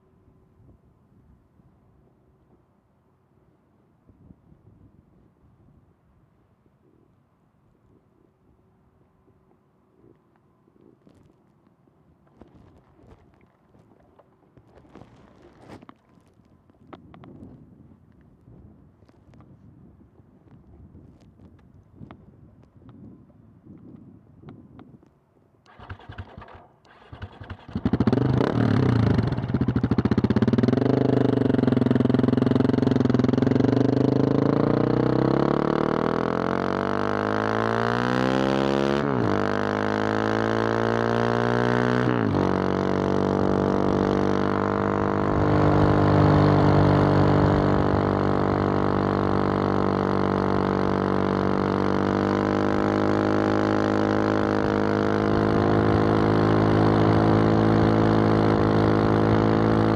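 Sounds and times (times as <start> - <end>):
motorcycle engine accelerating: 25.7 - 59.9.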